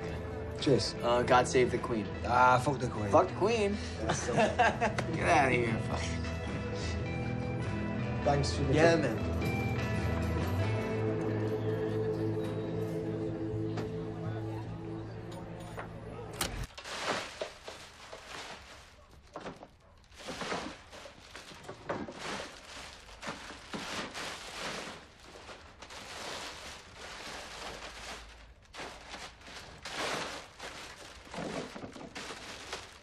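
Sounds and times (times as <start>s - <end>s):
plastic bag rustling: 16.6s - 33.0s.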